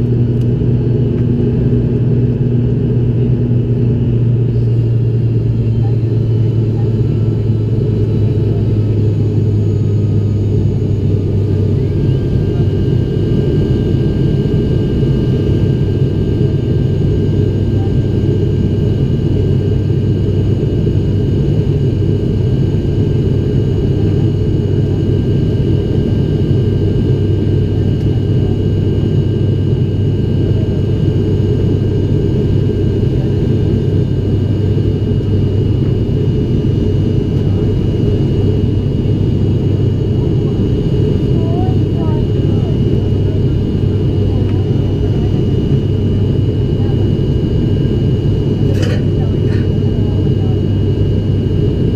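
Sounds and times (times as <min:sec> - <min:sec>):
aircraft cabin engine drone: 0:00.0 - 0:51.9
high steady whine: 0:00.0 - 0:51.9.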